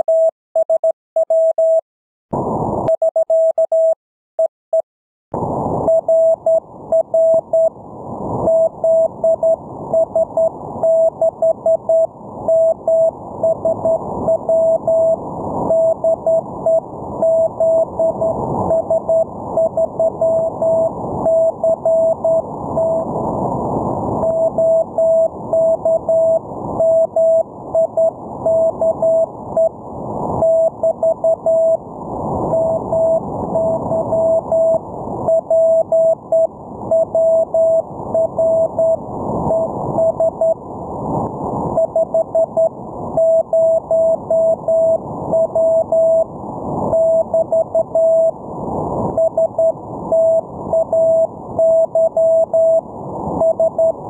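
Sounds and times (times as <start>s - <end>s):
morse code tone: 5.9s - 7.7s, 8.4s - 23.1s, 24.2s - 29.7s, 30.4s - 31.8s, 32.5s - 40.6s, 41.8s - 46.3s, 46.9s - 48.3s, 49.2s - 52.8s, 53.4s - 54.0s.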